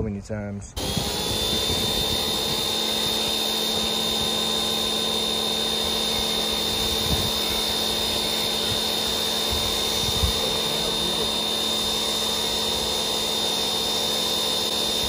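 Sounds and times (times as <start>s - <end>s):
pressure washer whining: 0.8s - 15.0s
water jet spraying on metal: 1.0s - 15.0s.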